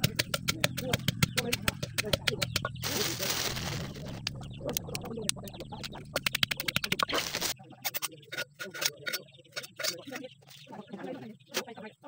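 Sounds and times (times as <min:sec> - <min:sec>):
wooden pestle knocking in mortar: 0:00.0 - 0:02.8.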